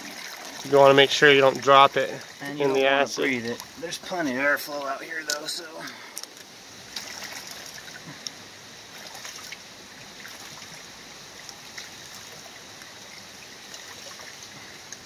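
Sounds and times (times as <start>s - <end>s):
liquid trickling into plastic tub: 0.0s - 5.6s.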